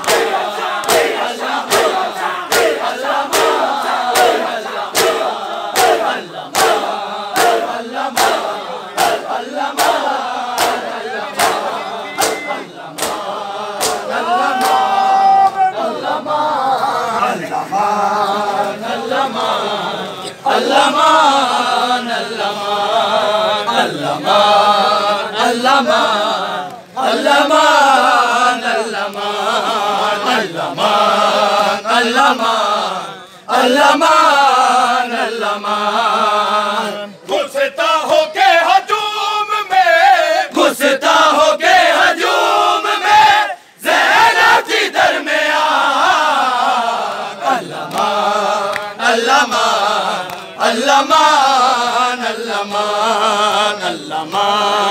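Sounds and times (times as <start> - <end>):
hands slapping bare chests: 0.0 - 9.2, 10.6 - 14.8
men chanting in unison: 0.0 - 54.9.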